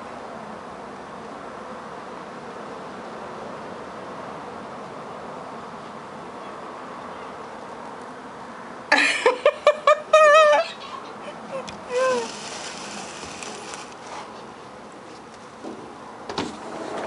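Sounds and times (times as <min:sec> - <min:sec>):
child squealing: 0:10.1 - 0:12.4.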